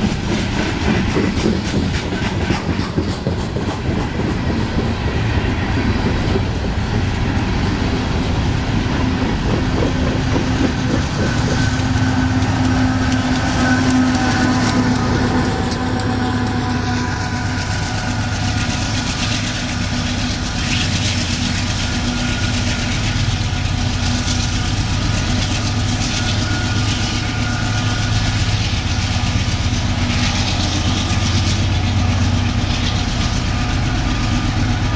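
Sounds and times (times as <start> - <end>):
locomotive engine hum: 0.0 - 34.9
train wheels on rails: 0.0 - 34.9.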